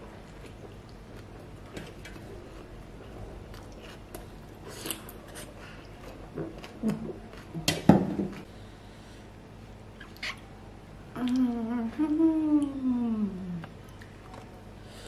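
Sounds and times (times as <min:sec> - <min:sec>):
close-up chewing: 0:00.1 - 0:07.7.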